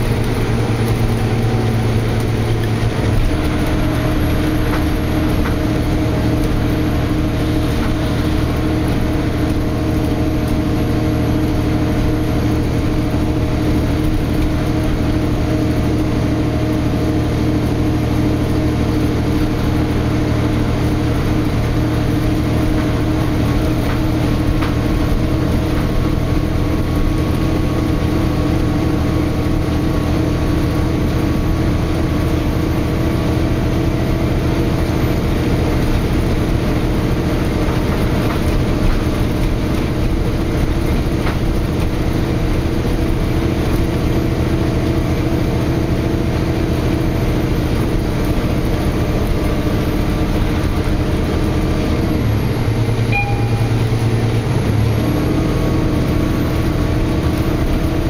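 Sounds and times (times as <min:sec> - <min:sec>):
bus diesel engine running: 0:00.0 - 0:58.0
road noise: 0:00.0 - 0:58.0
high beep: 0:53.1 - 0:54.3.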